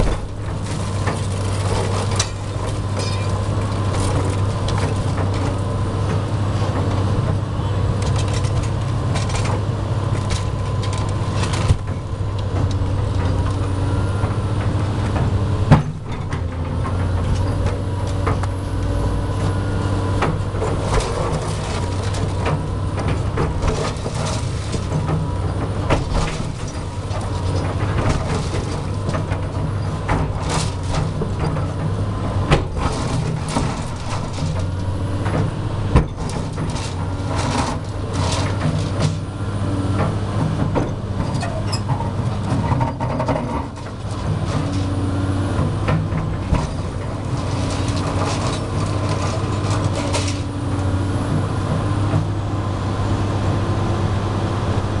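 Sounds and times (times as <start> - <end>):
concrete cracking and rubble falling: 0.0 - 5.6, 36.0 - 39.3, 46.0 - 50.6
excavator diesel engine running: 0.0 - 55.0.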